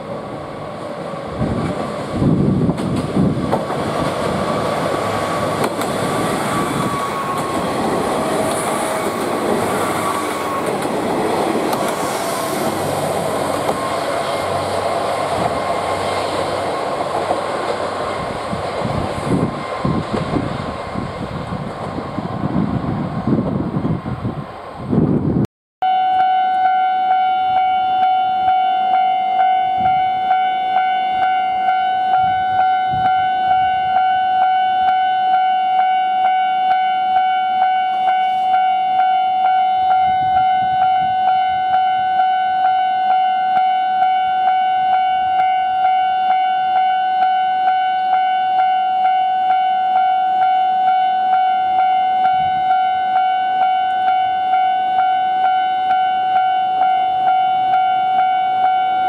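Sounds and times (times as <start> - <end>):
level crossing alarm ringing: 6.5 - 9.2, 25.8 - 59.0.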